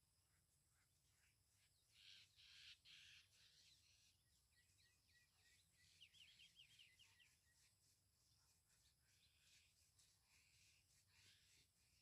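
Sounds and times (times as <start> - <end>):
bird chirping: 1.7 - 9.9.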